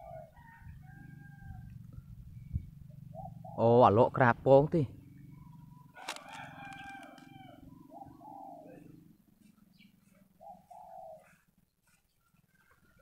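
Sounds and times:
rooster crowing: 0.0 - 1.8, 5.9 - 8.4
doves cooing: 0.0 - 13.0.

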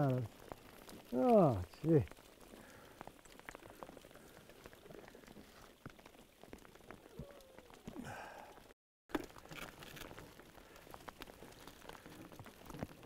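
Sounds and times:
faint hail pattering: 0.0 - 13.0.

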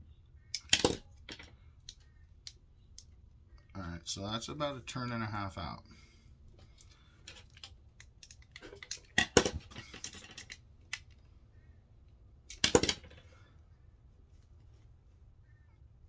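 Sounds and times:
small parts and tools clattering: 0.6 - 2.1, 6.6 - 11.3, 12.5 - 13.5.

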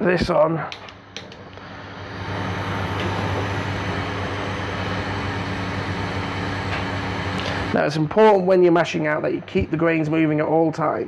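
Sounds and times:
gas burner rushing: 0.0 - 10.6.

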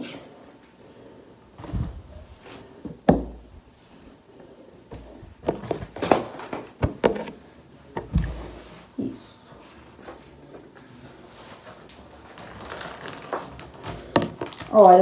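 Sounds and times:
cloth rustling: 11.1 - 15.0.

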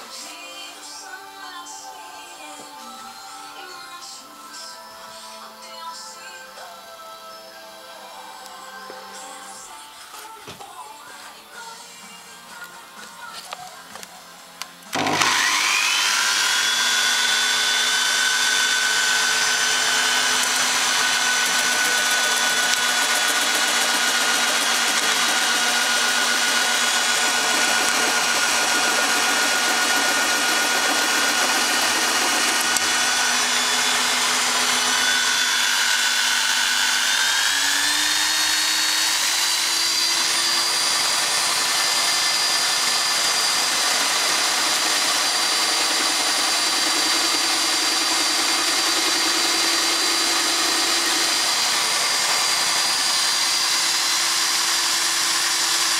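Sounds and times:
electric drill motor whine: 13.4 - 55.9.

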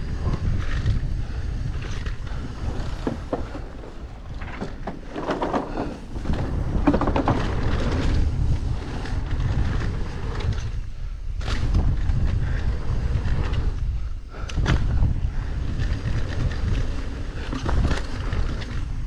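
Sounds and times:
tyres rolling on dirt: 0.0 - 13.8, 14.4 - 19.0
bike rattling: 0.0 - 19.0
wind buffeting microphone: 0.0 - 19.0
tyres clattering over planks: 3.0 - 7.9.

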